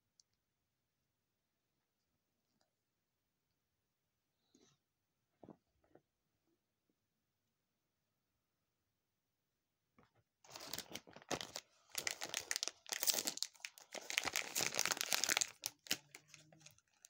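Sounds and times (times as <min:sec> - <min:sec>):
plastic wrapping crinkling and tearing: 0:10.5 - 0:17.0.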